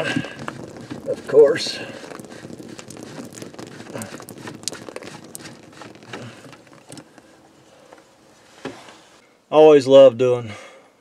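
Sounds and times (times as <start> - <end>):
water trickling: 0.0 - 8.4
plastic clicks and rustles: 0.0 - 8.9.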